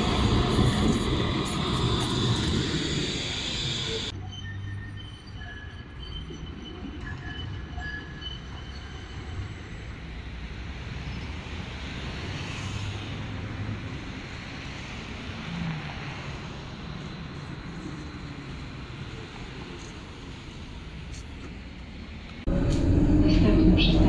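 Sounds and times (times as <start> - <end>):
tram wheels rumbling on rails: 0.0 - 4.2, 5.3 - 24.0
tram wheel squeals: 0.0 - 10.4, 22.5 - 24.0.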